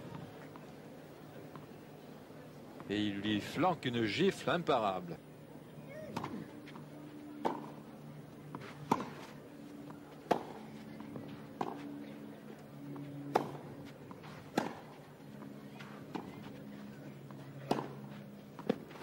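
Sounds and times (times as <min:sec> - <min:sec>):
tennis ball hit by rackets: 0:06.1 - 0:06.8, 0:07.4 - 0:07.8, 0:08.5 - 0:09.3, 0:10.2 - 0:11.9, 0:13.3 - 0:15.0, 0:17.6 - 0:19.0.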